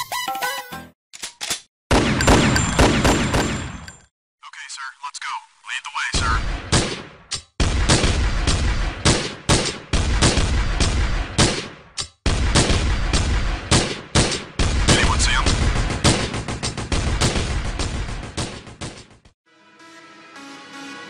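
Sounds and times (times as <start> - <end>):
music: 0.0 - 1.0, 19.4 - 21.0
rapid heavy gunshots: 1.9 - 3.8, 6.2 - 19.2.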